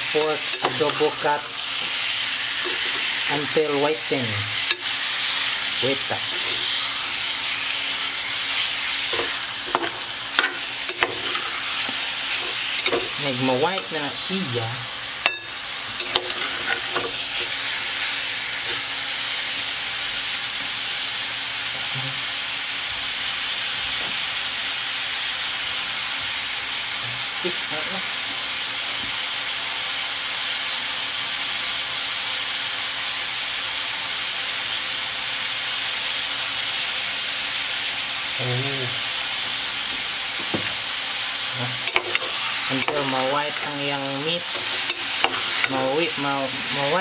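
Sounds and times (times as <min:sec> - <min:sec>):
meat sizzling in hot oil: 0:00.0 - 0:47.0
metal ladle clinking on pot: 0:15.3 - 0:16.4.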